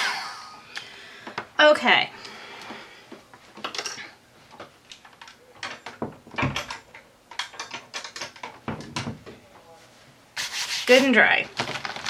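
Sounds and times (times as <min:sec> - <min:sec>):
craft materials clicking and rustling: 0:03.6 - 0:09.1.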